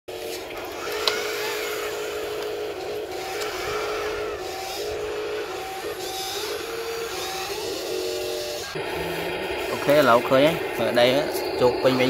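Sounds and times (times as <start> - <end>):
electric motors whining: 0.1 - 12.0.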